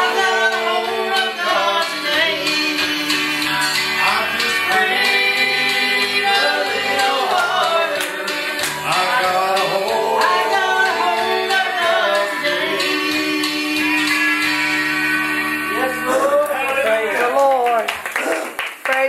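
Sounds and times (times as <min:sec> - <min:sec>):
man and woman singing: 0:00.0 - 0:14.1
acoustic guitar: 0:00.0 - 0:17.4.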